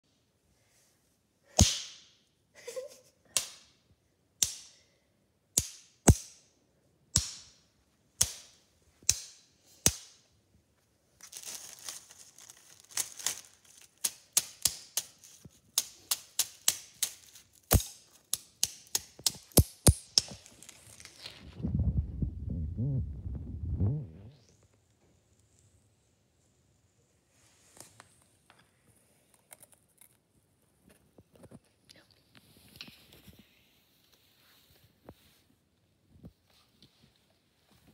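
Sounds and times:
candy and plastic bag crunching: 0:11.2 - 0:14.4, 0:20.4 - 0:21.6.

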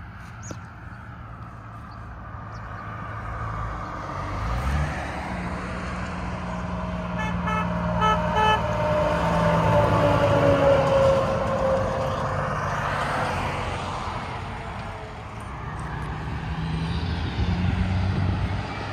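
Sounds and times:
diesel truck engine: 0:00.0 - 0:18.9
truck air horn blasts: 0:07.1 - 0:10.0.

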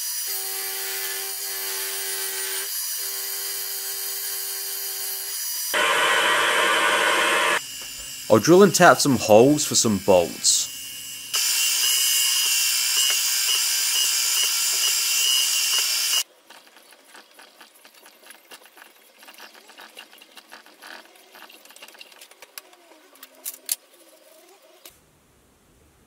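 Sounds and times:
milling machine drilling whine: 0:05.7 - 0:16.2.

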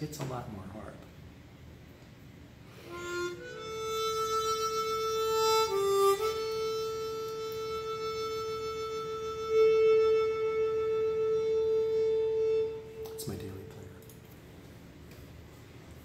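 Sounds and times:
harmonica playing: 0:02.7 - 0:14.0.

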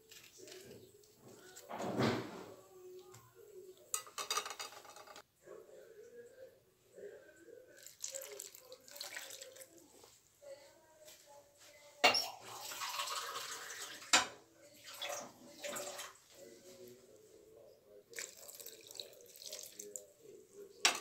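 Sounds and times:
water pouring into saucepan: 0:07.8 - 0:09.8, 0:12.3 - 0:16.2, 0:18.1 - 0:20.1.

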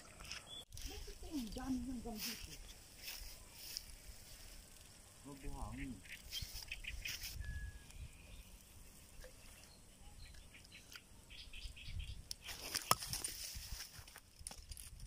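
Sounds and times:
bird chirp: 0:05.2 - 0:13.0
light clicks and rustles: 0:12.3 - 0:15.0.

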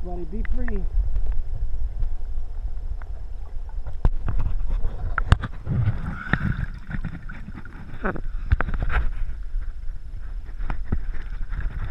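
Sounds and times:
muffled underwater rumble: 0:00.0 - 0:11.9
sharp clicks underwater: 0:00.3 - 0:02.2, 0:02.9 - 0:11.9
water splashing: 0:02.5 - 0:11.9.

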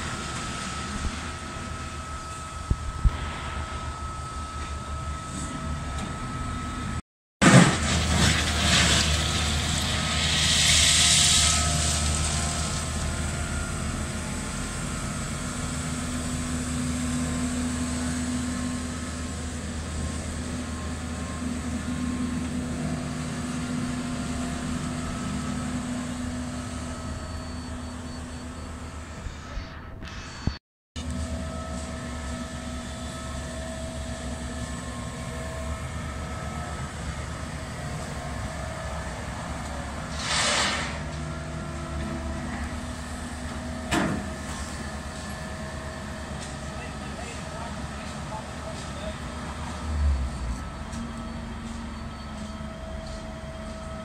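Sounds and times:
excavator engines droning: 0:00.0 - 0:54.0
hiss: 0:40.1 - 0:41.1.

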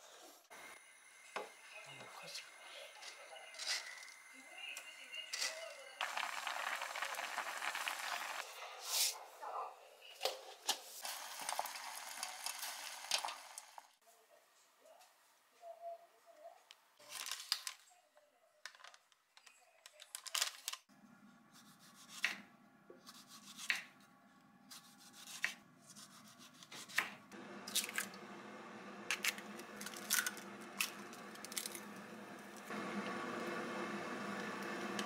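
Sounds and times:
knife slicing tomato: 0:21.6 - 0:24.0, 0:24.7 - 0:27.2.

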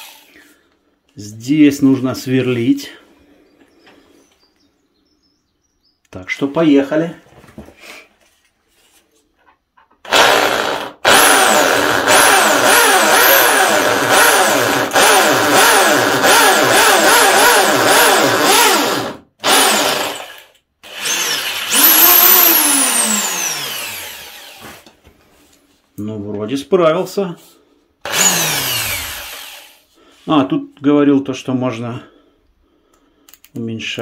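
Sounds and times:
electric impact drill boring into concrete: 0:00.0 - 0:00.4, 0:10.0 - 0:24.9, 0:28.0 - 0:29.8.

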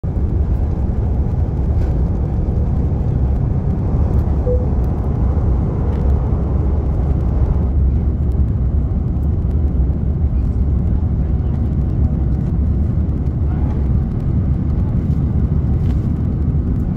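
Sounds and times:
jet engines rumbling: 0:00.0 - 0:16.9
short cabin tone: 0:04.4 - 0:04.9.

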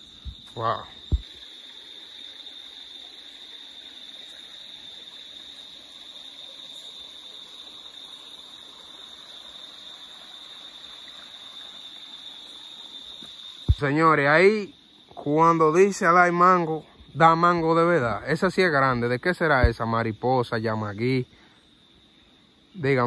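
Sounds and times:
crickets trilling: 0:00.0 - 0:23.0
flowing river water: 0:07.1 - 0:14.0.

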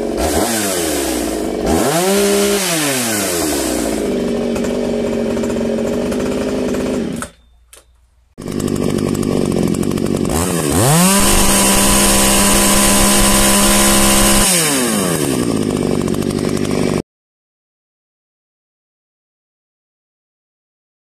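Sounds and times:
chainsaw idling and revving: 0:00.0 - 0:07.4, 0:08.4 - 0:17.0.

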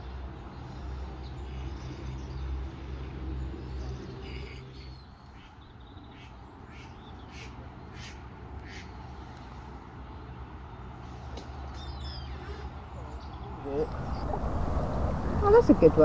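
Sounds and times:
birds calling: 0:13.2 - 0:16.0
low rumble: 0:13.6 - 0:16.0.

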